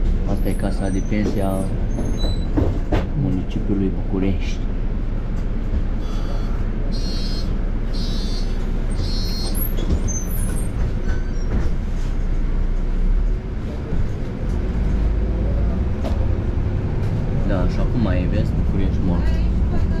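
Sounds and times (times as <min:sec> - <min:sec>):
bus engine and road rumble: 0:00.0 - 0:20.0
brief high squeals: 0:06.0 - 0:11.5.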